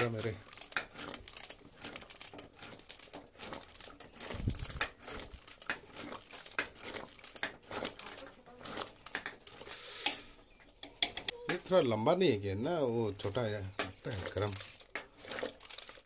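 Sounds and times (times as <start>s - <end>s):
immersion blender crackling: 0.0s - 16.0s.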